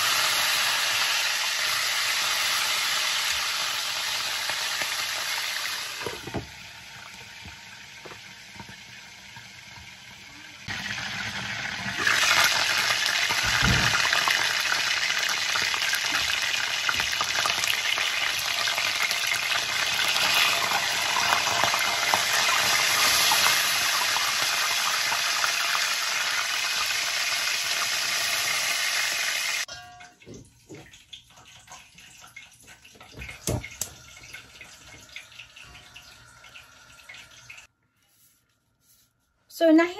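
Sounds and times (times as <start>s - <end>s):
chicken sizzling in hot oil: 0.0s - 29.7s.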